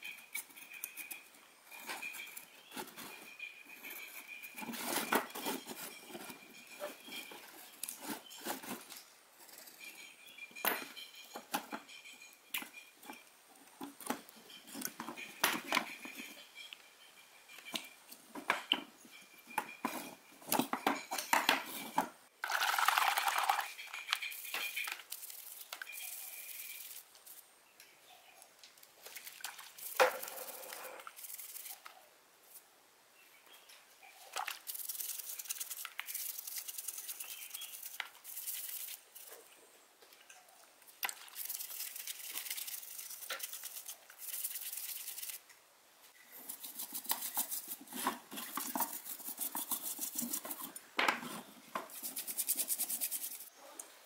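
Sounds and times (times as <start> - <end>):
fast rubbing on hard surface: 46.4 - 50.7, 51.9 - 53.5.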